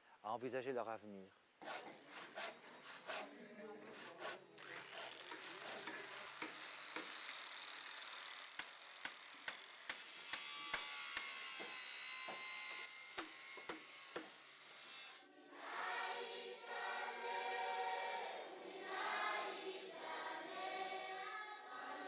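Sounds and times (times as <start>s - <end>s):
power tool hiss and whine: 1.7s - 15.2s.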